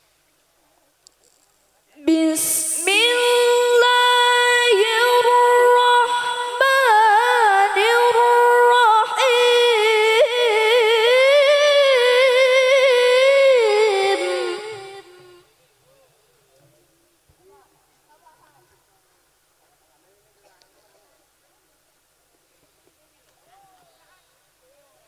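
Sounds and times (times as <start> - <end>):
girl reciting melodically over pa: 2.0 - 15.4.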